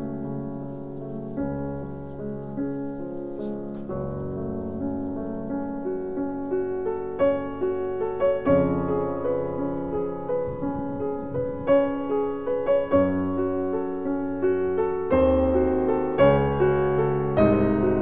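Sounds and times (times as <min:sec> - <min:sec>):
slow piano music: 0:00.0 - 0:18.0.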